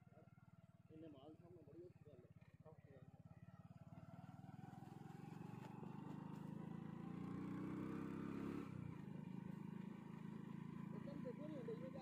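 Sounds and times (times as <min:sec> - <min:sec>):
vehicle engine speeding up: 0:05.0 - 0:08.8.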